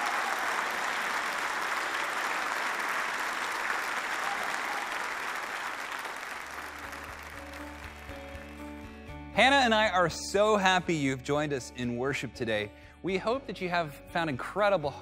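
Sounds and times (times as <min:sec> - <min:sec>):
congregation applauding: 0:00.0 - 0:09.1.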